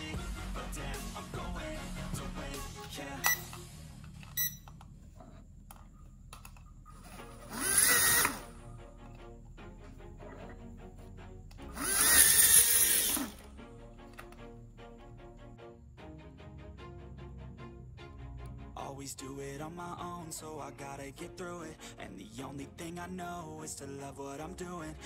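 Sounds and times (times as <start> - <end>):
background music: 0.0 - 5.2, 5.8 - 25.0
drone propellers whirring: 7.0 - 8.5, 11.7 - 13.4.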